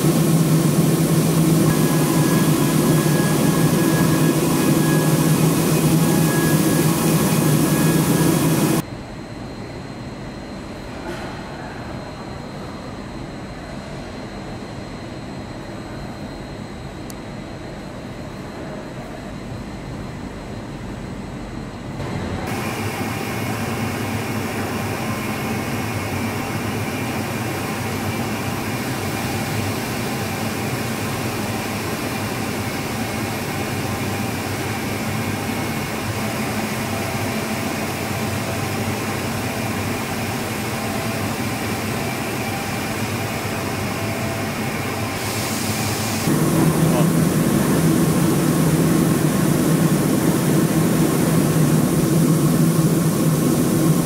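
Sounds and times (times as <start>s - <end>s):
loud low drone: 0.0s - 8.8s, 46.0s - 54.0s
machinery hum with whining tones: 0.0s - 54.0s.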